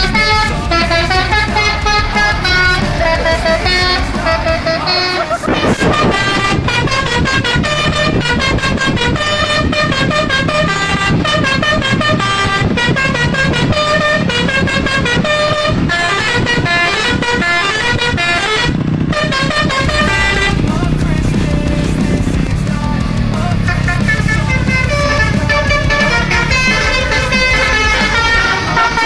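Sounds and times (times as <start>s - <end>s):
bus engine running: 0.0s - 29.0s
musical air horn tune: 0.0s - 29.0s.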